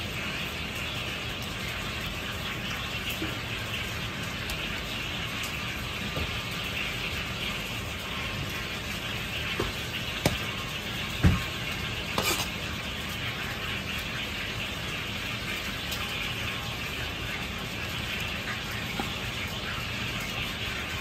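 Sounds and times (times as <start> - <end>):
rushing kitchen background: 0.0 - 21.0.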